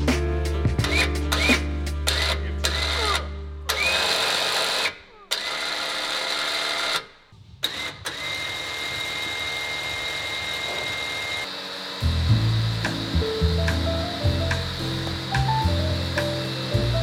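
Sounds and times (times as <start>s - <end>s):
electric winch spooling cable: 0.8s - 17.0s.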